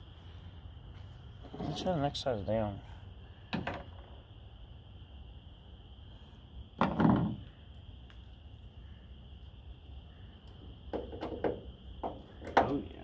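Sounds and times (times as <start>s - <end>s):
dull knocks of hand tools: 10.9s - 12.8s.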